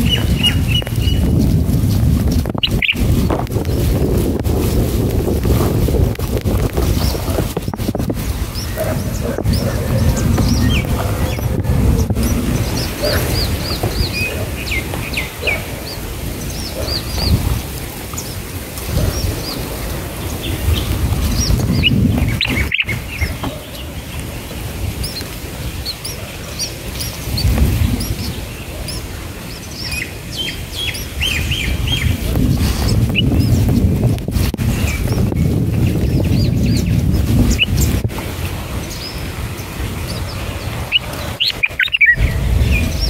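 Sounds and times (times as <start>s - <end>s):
small birds chirping: 0.0s - 4.8s, 5.4s - 43.0s
low uneven rumble: 0.0s - 29.9s, 42.2s - 43.0s.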